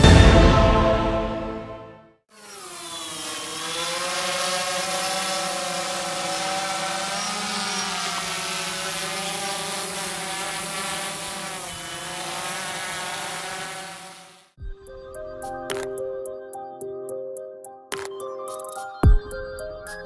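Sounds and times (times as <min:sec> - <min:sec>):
drone propellers whining: 0:02.3 - 0:14.6.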